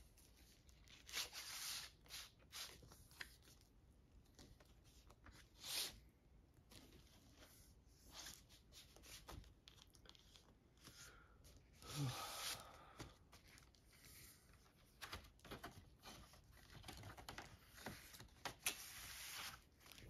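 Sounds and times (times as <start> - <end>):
paper record sleeve rustling: 13.2 - 20.0.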